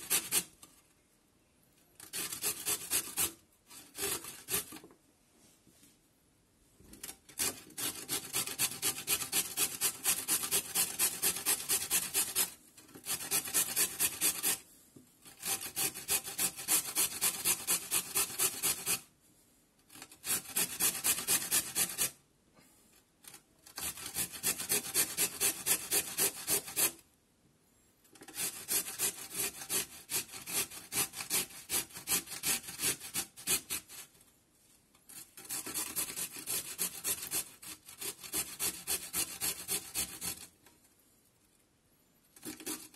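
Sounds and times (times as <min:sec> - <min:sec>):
carrot grating on metal grater: 0:00.0 - 0:00.5, 0:02.0 - 0:04.8, 0:07.0 - 0:14.6, 0:15.2 - 0:19.0, 0:19.9 - 0:22.2, 0:23.6 - 0:27.0, 0:28.2 - 0:34.0, 0:35.1 - 0:40.6, 0:42.4 - 0:42.9.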